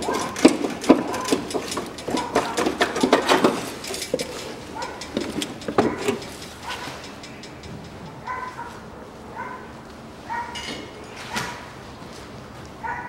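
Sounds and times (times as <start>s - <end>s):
hand tools clinking on metal: 0.0s - 8.8s.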